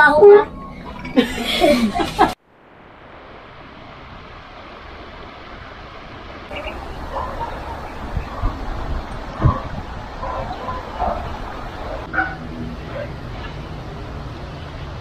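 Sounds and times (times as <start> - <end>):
voices talking: 6.5 - 12.1.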